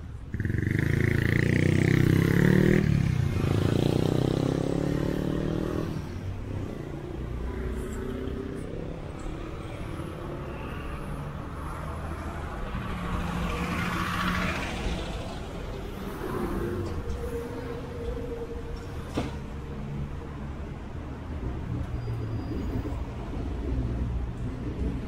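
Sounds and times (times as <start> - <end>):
low traffic rumble: 0.0 - 25.0
vehicle passing: 0.3 - 18.6
vehicle engine pulling away: 0.4 - 6.6.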